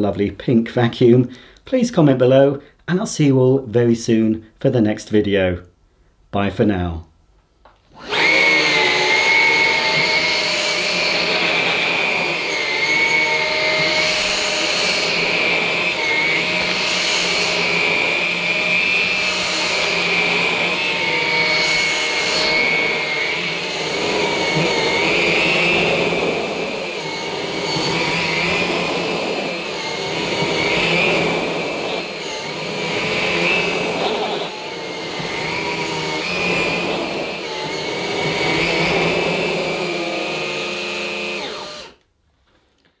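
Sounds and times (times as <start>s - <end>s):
cordless vacuums whining on carpet: 7.9s - 42.1s.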